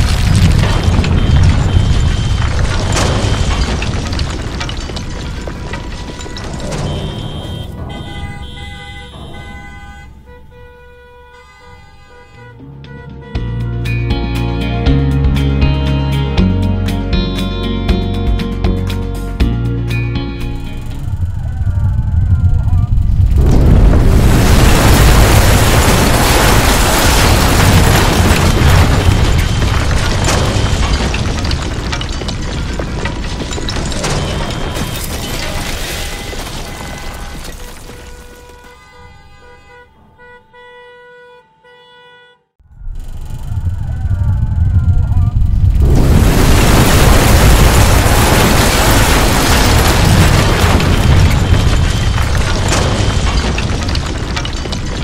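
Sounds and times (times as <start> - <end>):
deep earthquake rumble: 0.0 - 10.7, 20.2 - 37.5, 42.6 - 55.0
falling masonry crashing: 0.0 - 10.8, 20.5 - 39.4, 43.6 - 55.0.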